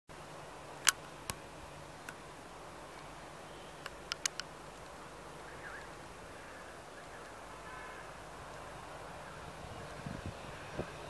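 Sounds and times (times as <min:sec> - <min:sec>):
faint steady hiss: 0:00.1 - 0:11.0
sharp clicks: 0:03.8 - 0:04.9.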